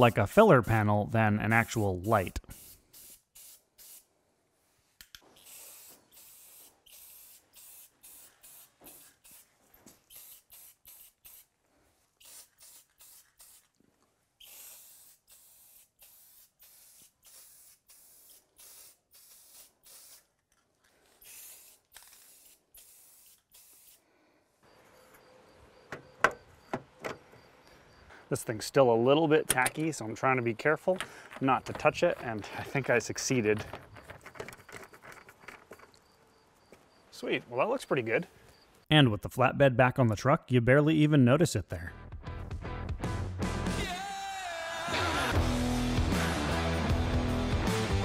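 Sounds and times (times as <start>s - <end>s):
spray paint can hissing bursts: 1.6s - 4.1s, 5.2s - 13.8s, 14.4s - 20.5s, 21.1s - 24.0s.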